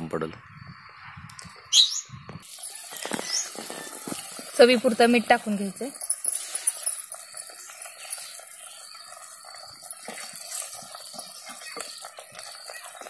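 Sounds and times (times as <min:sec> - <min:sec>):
curry simmering in a pot: 0:07.1 - 0:13.0.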